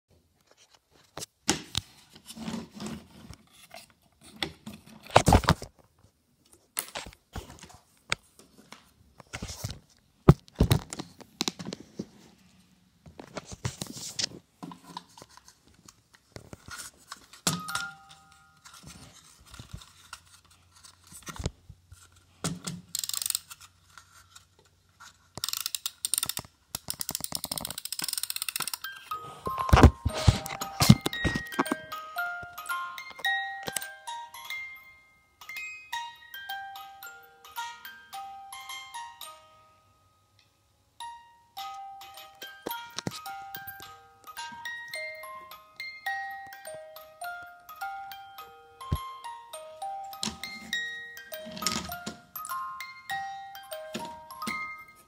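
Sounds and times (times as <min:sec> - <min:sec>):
wooden toy handling knocks and clicks: 0:25.3 - 0:28.9, 0:29.5 - 0:31.9.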